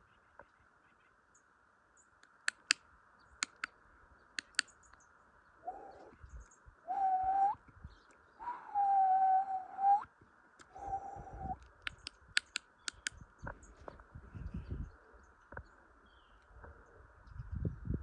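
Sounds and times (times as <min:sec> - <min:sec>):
person whistling low notes: 0:06.9 - 0:07.6, 0:08.4 - 0:10.0, 0:10.8 - 0:11.6
tongue clicking: 0:11.8 - 0:13.2.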